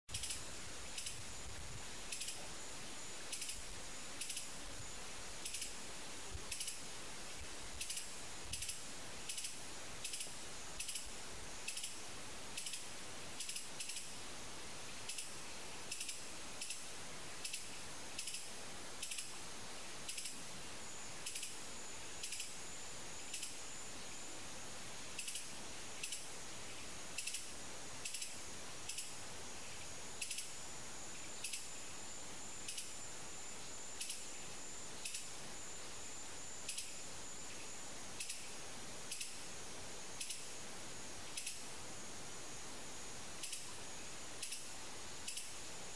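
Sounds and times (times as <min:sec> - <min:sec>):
constant hiss: 0:00.0 - 0:45.9
faint high whine: 0:00.1 - 0:45.9.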